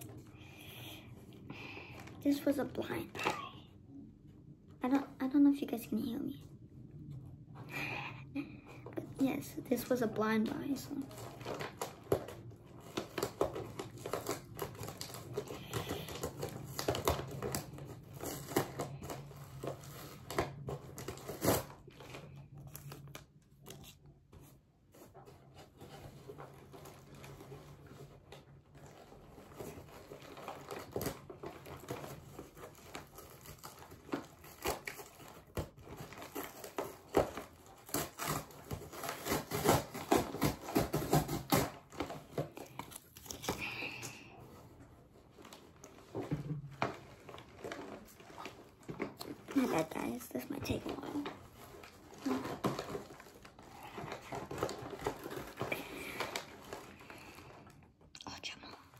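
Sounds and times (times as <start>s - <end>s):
packaging crumpled and torn: 10.5s - 24.1s, 25.9s - 57.9s.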